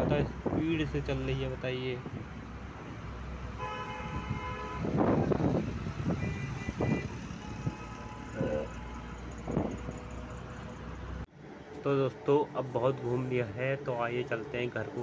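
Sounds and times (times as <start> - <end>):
bus engine rumble: 0.0 - 15.0
road traffic: 0.0 - 15.0
higher horn honking: 3.5 - 9.7
vehicle horn honking: 3.6 - 5.4, 6.1 - 9.2.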